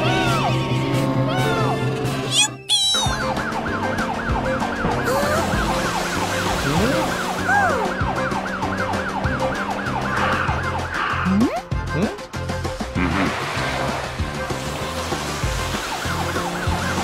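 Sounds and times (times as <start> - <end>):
electronic police siren yelping: 2.4 - 11.4.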